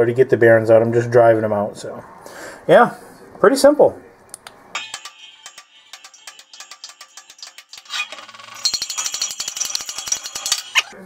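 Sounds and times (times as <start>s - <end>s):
hammer tapping on metal: 4.8s - 8.0s.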